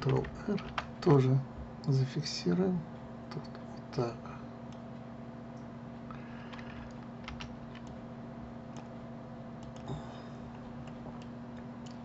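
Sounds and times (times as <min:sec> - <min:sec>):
steady low hum: 0:00.0 - 0:12.0
computer mouse clicks: 0:06.4 - 0:08.0, 0:09.6 - 0:10.0.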